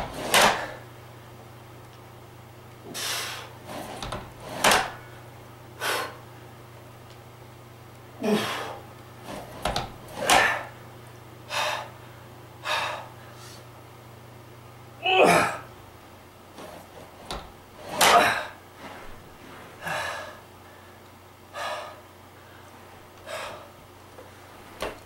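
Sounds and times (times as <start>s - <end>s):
man breathing hard: 2.9s - 3.6s, 5.8s - 6.2s, 8.2s - 8.9s, 11.5s - 13.7s, 19.8s - 23.8s
man grunting: 8.2s - 8.8s, 15.0s - 15.7s, 18.0s - 18.6s.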